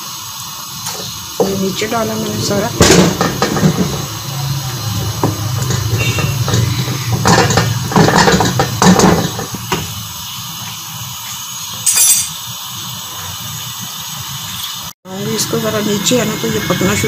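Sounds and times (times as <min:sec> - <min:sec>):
gravy simmering hiss: 0:00.0 - 0:17.0
metal spatula scraping wok: 0:01.0 - 0:09.8.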